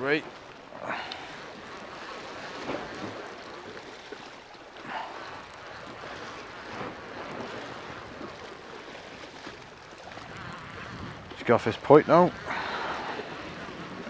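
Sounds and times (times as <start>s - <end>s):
surf washing against rocks: 0.0s - 14.0s
wind on microphone: 10.1s - 14.0s.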